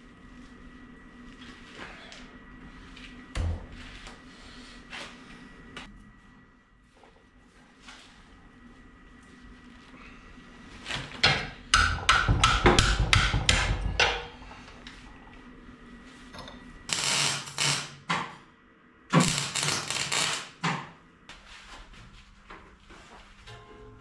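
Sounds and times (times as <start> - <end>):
hammer striking sheet steel: 11.7 - 14.3.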